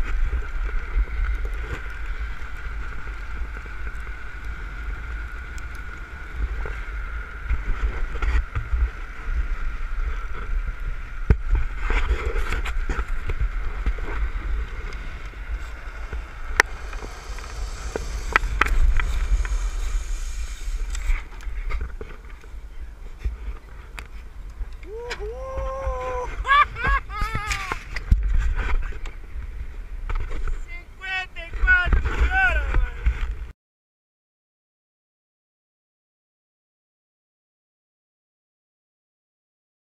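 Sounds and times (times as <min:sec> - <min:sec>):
wind buffeting microphone: 0:00.0 - 0:30.6
steady high hum: 0:09.0 - 0:27.8.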